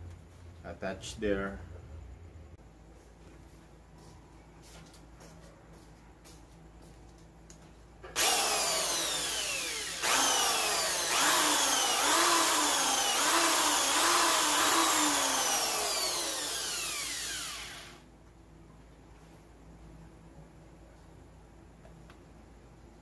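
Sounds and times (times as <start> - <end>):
electric drill drilling into plastic: 8.2 - 18.0.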